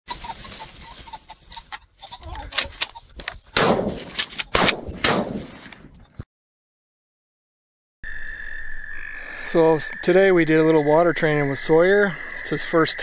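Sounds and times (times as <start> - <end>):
echoing gunshots: 3.6 - 5.7.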